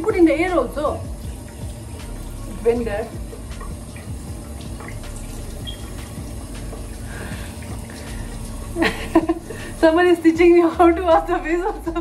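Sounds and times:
tap water running into sink: 0.0 - 12.0
face washing: 1.1 - 10.0.

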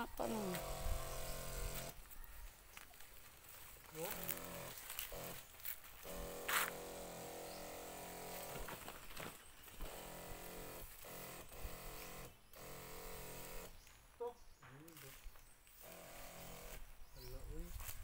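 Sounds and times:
electric sprayer pump humming: 0.0 - 2.0, 4.0 - 8.8, 9.6 - 13.8, 15.8 - 17.0.

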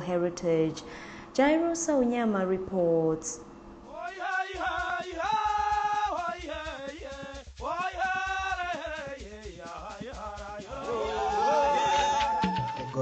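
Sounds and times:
drums beating: 3.9 - 13.0
gourd shakers: 3.9 - 13.0
people singing: 3.9 - 13.0.

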